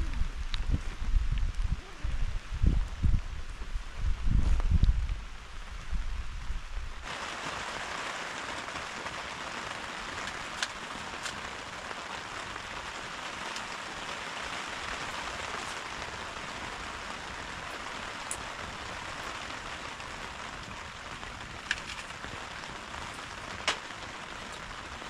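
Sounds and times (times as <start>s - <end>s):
low rumble: 0.0s - 7.0s
heavy rain hissing: 0.0s - 25.0s.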